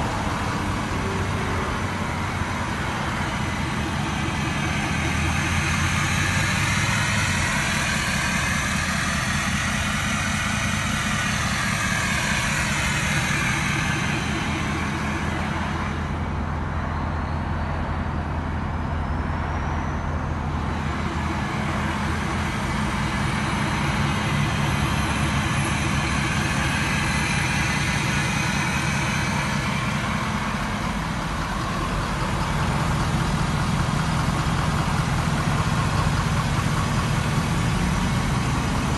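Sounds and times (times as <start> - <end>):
pickup truck engine idling: 0.0 - 38.9.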